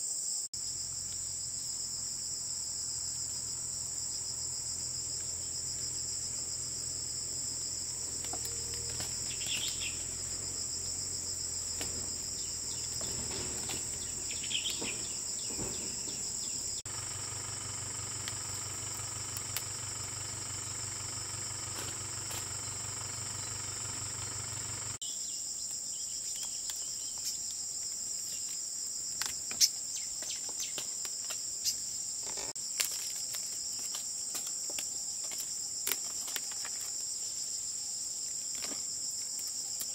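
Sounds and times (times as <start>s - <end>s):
insects droning: 0.0s - 39.9s
rustling leaves: 0.7s - 25.0s
twigs snapping: 8.2s - 10.0s, 11.8s - 12.2s, 17.7s - 20.1s, 21.4s - 22.6s, 32.6s - 37.0s.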